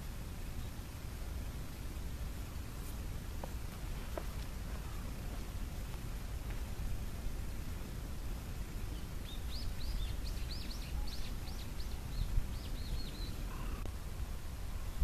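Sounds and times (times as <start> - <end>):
low background noise: 0.0 - 15.0
small bird chirping: 8.9 - 13.9.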